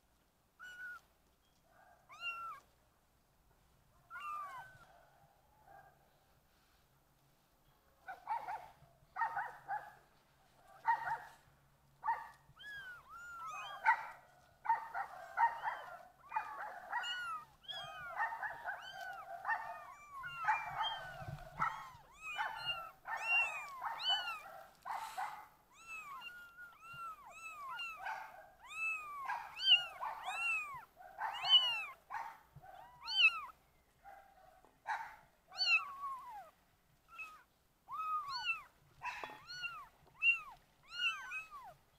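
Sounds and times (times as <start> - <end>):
kittens meowing: 0.6 - 1.1, 2.1 - 2.7, 4.1 - 4.8, 12.5 - 14.0, 15.6 - 24.4, 25.0 - 28.0, 28.6 - 32.0, 32.7 - 33.6, 35.5 - 41.8.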